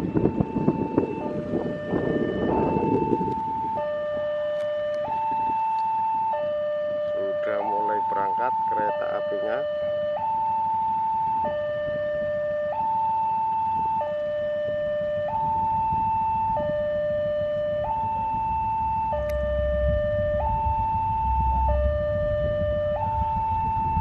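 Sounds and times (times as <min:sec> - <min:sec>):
two-tone level-crossing alarm: 0:00.0 - 0:24.0
diesel locomotive rumble: 0:16.6 - 0:24.0.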